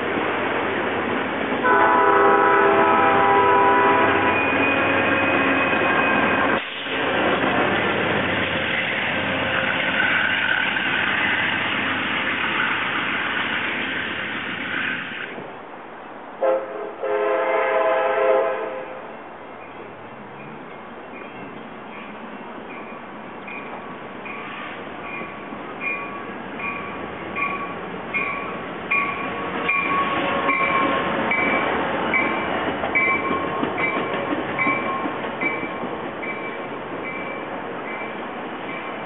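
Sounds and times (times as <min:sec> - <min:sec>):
train rushing past: 0:00.0 - 0:39.0
train air horn: 0:01.6 - 0:05.6, 0:16.4 - 0:19.1.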